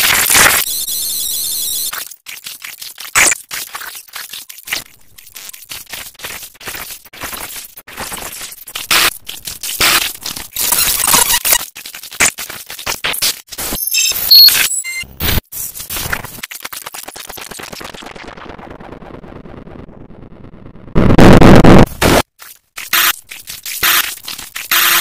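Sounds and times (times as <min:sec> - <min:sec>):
stuttering distorted noise bursts: 0:04.7 - 0:09.2, 0:09.8 - 0:22.2, 0:22.8 - 0:25.0
short high beeps: 0:13.8 - 0:15.0.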